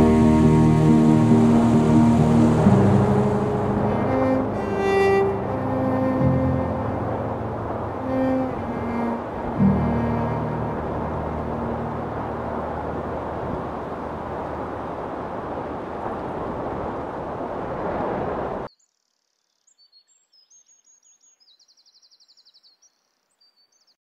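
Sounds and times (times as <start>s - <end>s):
loud rushing noise: 0.0s - 16.5s
songbird chirps: 18.7s - 24.0s.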